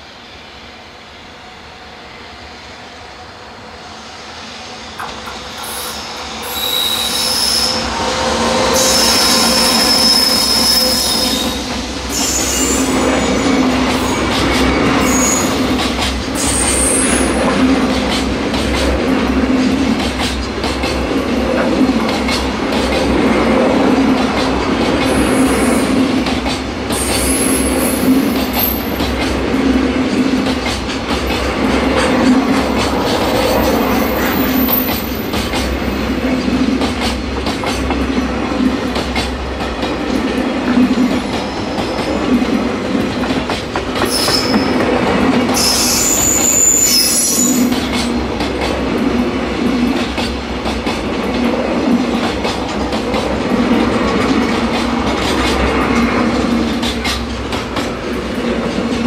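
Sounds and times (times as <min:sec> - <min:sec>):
electric locomotive passing: 0:00.0 - 0:59.0
freight train rumbling: 0:00.0 - 0:59.0
high wheel squeals: 0:05.6 - 0:13.6, 0:44.0 - 0:44.8, 0:45.6 - 0:47.8.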